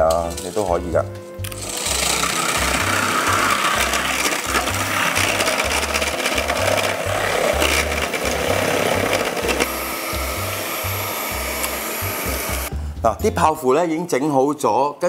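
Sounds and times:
beaters scraping metal bowl: 0.0 - 12.7
electric hand mixer running: 1.4 - 12.7.

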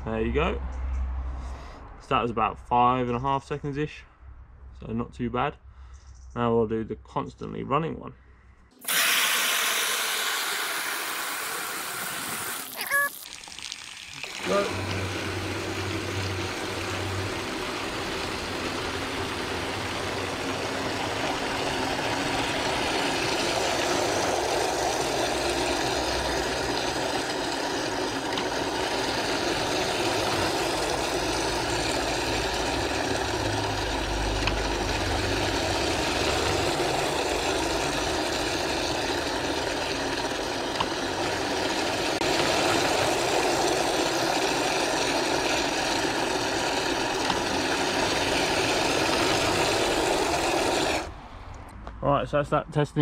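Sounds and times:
water spraying from hose: 8.8 - 51.2
pump motor hum: 8.8 - 51.4.

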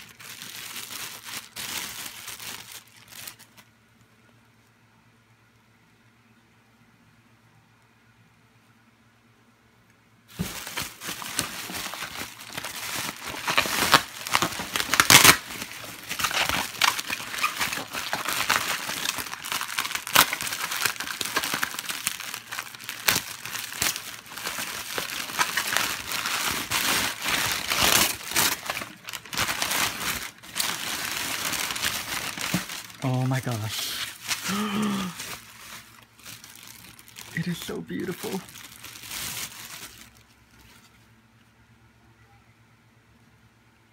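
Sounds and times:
rustling packing peanuts and paper: 0.0 - 3.7, 10.3 - 41.0
bubble wrap crinkling: 0.0 - 3.8, 10.3 - 41.1.

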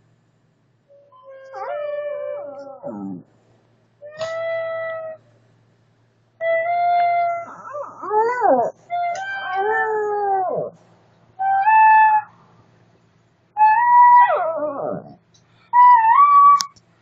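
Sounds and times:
dog howling: 1.0 - 3.2, 6.4 - 10.8, 11.4 - 12.3, 13.6 - 16.7.

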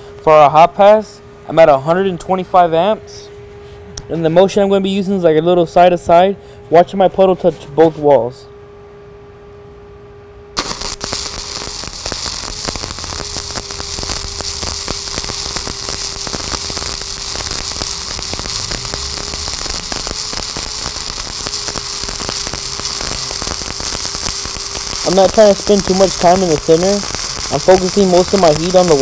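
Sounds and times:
welding arc crackling: 10.6 - 29.0.

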